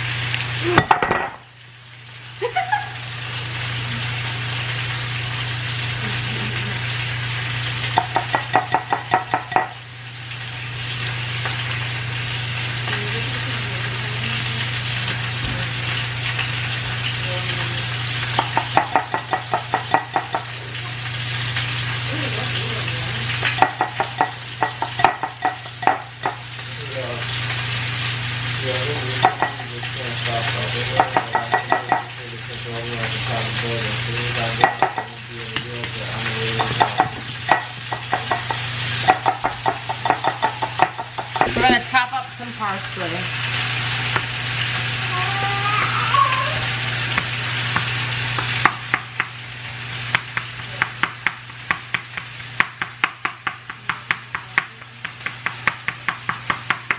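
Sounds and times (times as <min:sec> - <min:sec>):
chicken sizzling in frying pan: 0:00.0 - 0:56.9
spoon knocking against glass bowl: 0:31.0 - 0:32.1.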